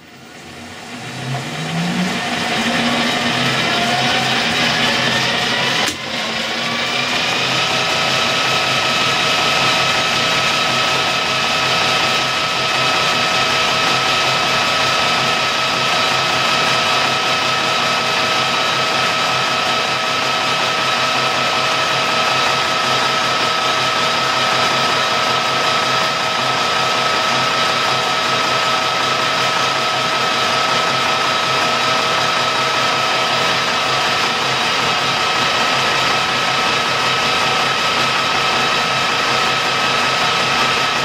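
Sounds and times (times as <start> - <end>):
metal lathe gear whine: 0.0 - 41.0
tool cutting metal bar: 1.0 - 12.4.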